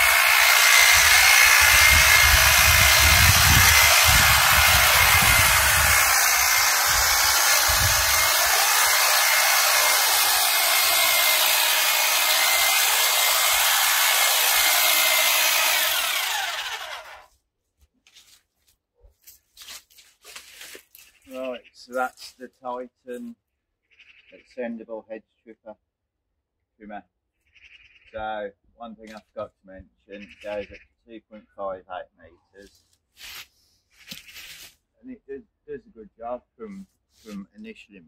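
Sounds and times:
hedge trimmer cutting hedge: 0.0s - 17.3s.

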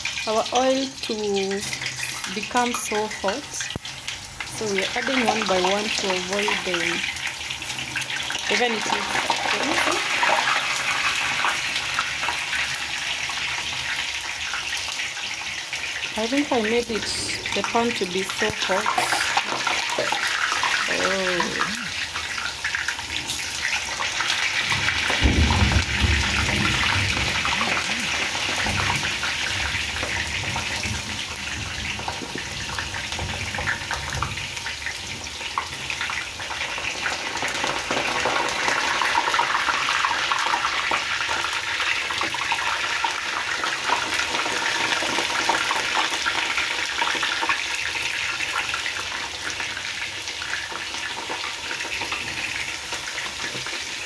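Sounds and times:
deep-frying crackling sizzle: 0.0s - 54.0s
low rumble: 16.7s - 18.4s.

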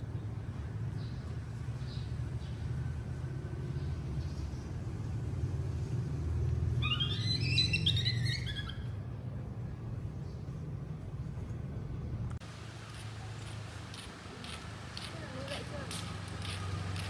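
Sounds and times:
baby monkey squealing: 6.8s - 9.0s.

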